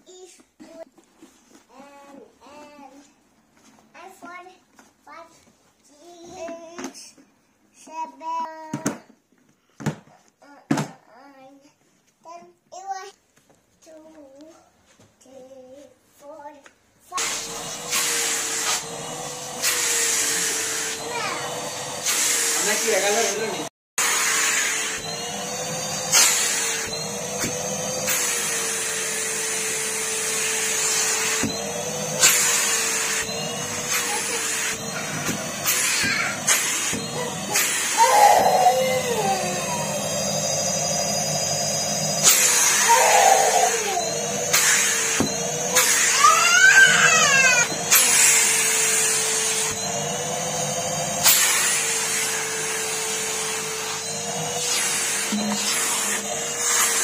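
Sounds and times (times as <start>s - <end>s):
vacuum cleaner running: 17.2s - 57.0s.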